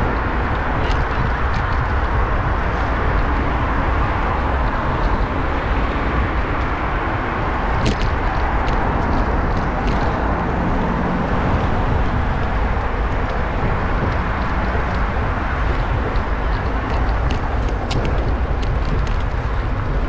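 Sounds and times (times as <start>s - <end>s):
wind and road noise: 0.0s - 20.0s
light clicks and ticks: 11.4s - 20.0s.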